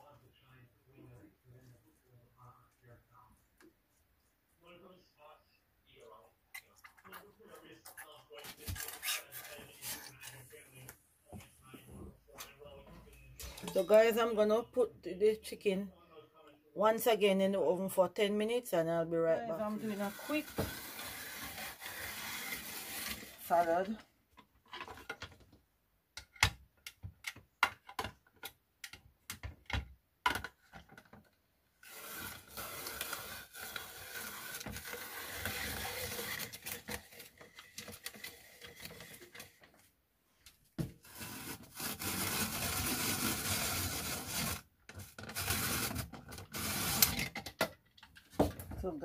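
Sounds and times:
slicer grater rasping: 19.8 - 23.4.

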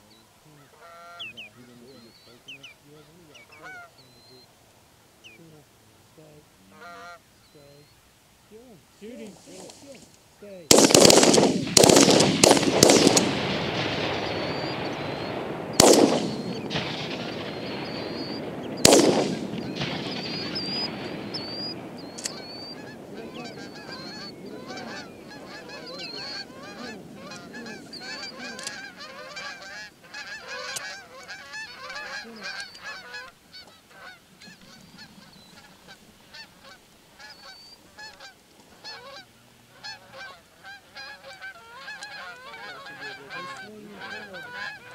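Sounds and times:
geese honking: 0.0 - 4.6, 5.2 - 44.9
shotgun shots: 10.7 - 31.0.

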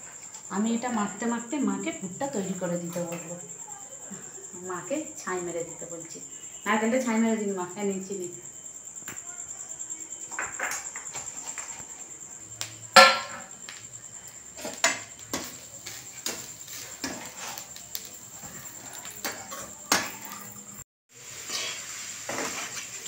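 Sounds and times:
metal kitchenware knocking on pan: 13.0 - 13.5.

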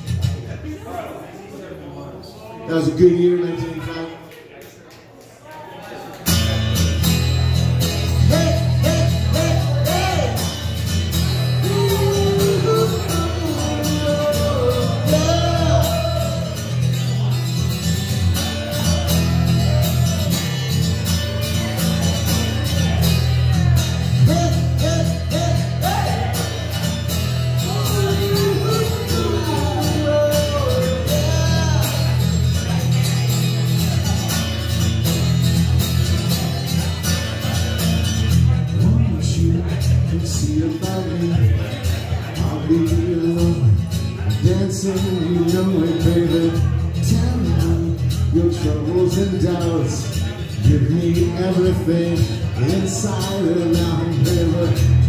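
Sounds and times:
acoustic guitar: 0.0 - 2.0, 5.9 - 55.0
bass line: 6.4 - 55.0.

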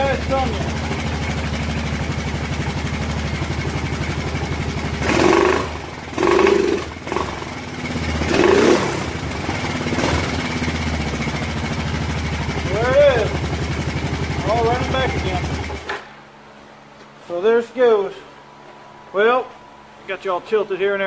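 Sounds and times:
engine idling and revving: 0.0 - 16.1.

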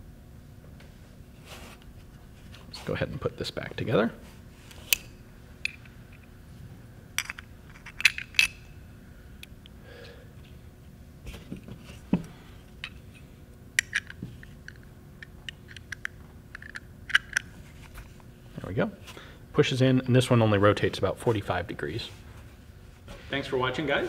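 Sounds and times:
small metal parts clicking: 7.2 - 8.6, 13.8 - 17.5.

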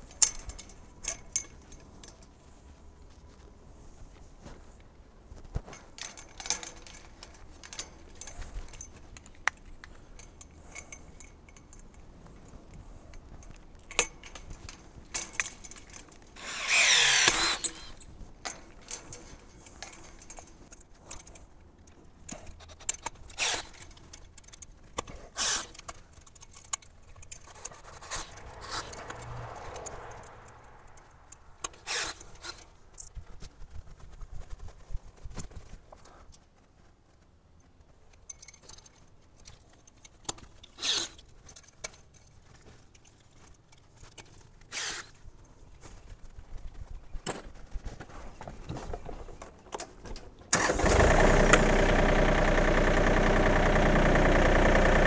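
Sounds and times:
metal wire clicks and jingles: 0.0 - 50.5
rasping metal scrape: 16.4 - 18.0, 25.3 - 25.8, 27.5 - 30.1.

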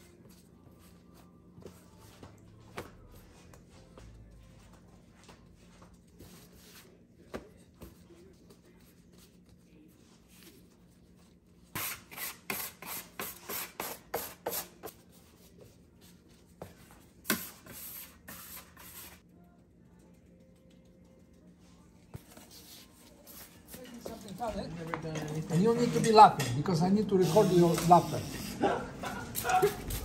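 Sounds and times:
dough rolled and rubbed: 0.0 - 11.9.

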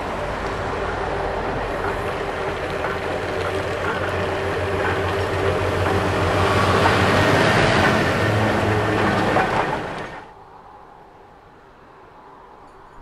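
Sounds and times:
steam traction engine rumbling: 0.0 - 10.4
wheels on tarmac: 0.0 - 12.6.

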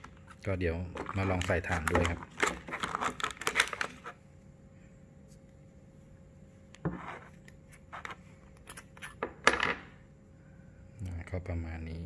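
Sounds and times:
plastic packaging clicks and rattles: 1.0 - 4.0.

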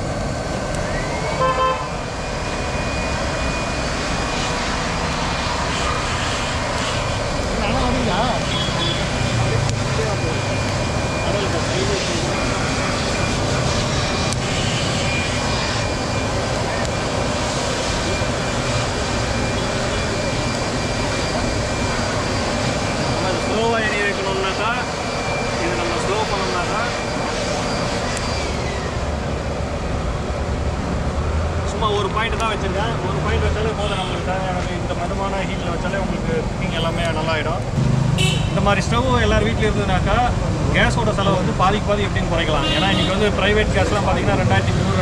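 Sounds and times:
stove flame and blower rushing: 0.0 - 32.6.

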